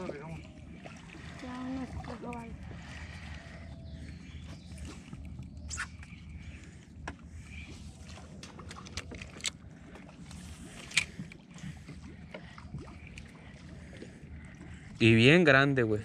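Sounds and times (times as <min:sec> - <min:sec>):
boat low hum: 0:00.0 - 0:16.0
knocks and clicks from gear and hull: 0:08.4 - 0:09.6.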